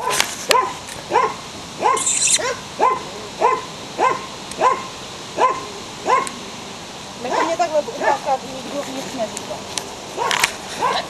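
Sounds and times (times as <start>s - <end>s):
puppy yelping: 0.0s - 6.4s, 7.3s - 8.3s, 10.2s - 11.0s.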